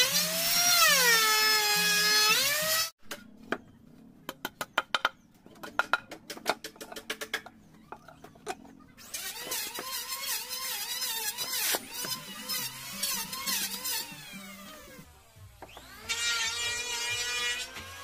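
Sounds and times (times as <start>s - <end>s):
timber boards clicking and knocking: 4.3s - 8.6s.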